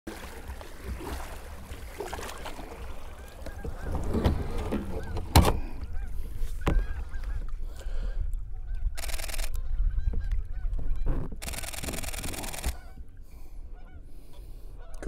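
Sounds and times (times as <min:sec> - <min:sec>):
paddle knocking on kayak: 0:00.1 - 0:07.6
kayak paddle splashing in water: 0:00.1 - 0:07.8
faint geese honking: 0:02.1 - 0:11.6, 0:12.6 - 0:15.0
wind rumbling on microphone: 0:02.7 - 0:13.2.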